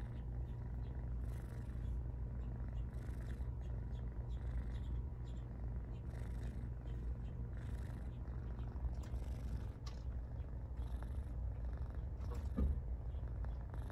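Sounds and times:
kitten purring: 0:00.0 - 0:13.9.

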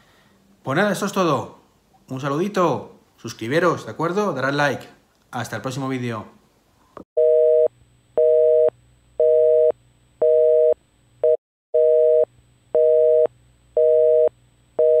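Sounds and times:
telephone busy signal beeps: 0:07.2 - 0:15.0.

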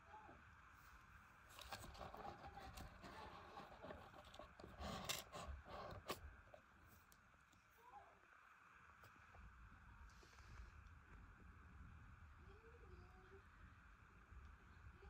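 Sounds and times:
soft rustling and scraping: 0:00.8 - 0:07.7.

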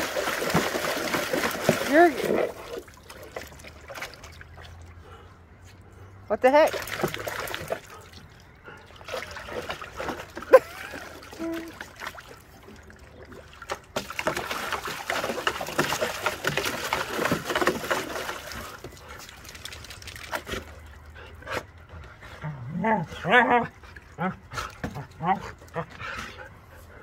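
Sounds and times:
water splashing in a plastic tub: 0:00.0 - 0:05.2, 0:06.4 - 0:21.8.

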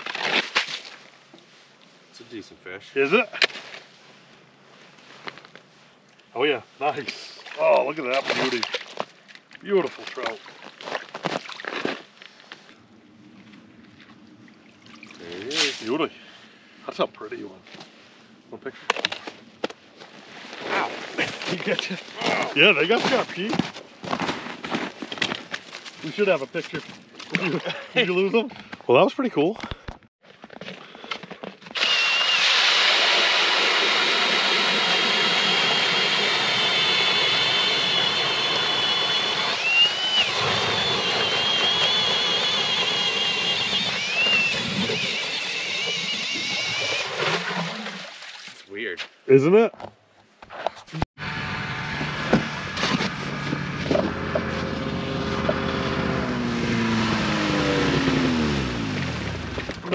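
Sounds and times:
auger grinding through ice: 0:00.0 - 0:00.9, 0:20.3 - 0:27.8, 0:30.5 - 0:48.2, 0:50.7 - 0:59.9
ice auger motor whine: 0:31.7 - 0:47.7, 0:51.2 - 0:59.9
snowmobile engine running: 0:32.6 - 0:47.3, 0:51.2 - 0:59.9.

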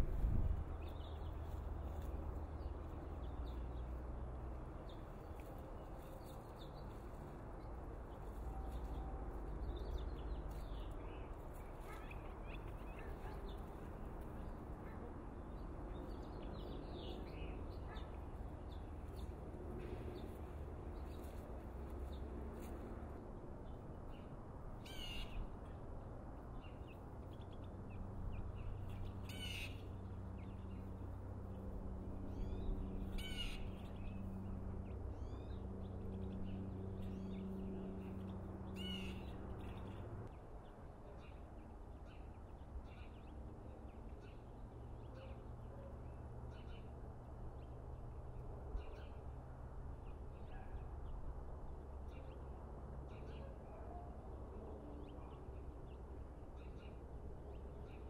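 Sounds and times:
low rumble: 0:00.0 - 0:00.7
birds calling: 0:28.3 - 0:30.8.

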